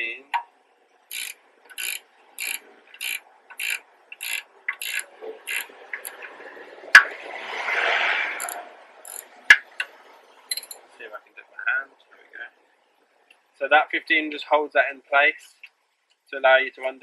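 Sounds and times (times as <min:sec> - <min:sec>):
ratchet spanner clicking: 0:01.1 - 0:06.2, 0:08.4 - 0:09.3
rushing noise: 0:05.0 - 0:10.4.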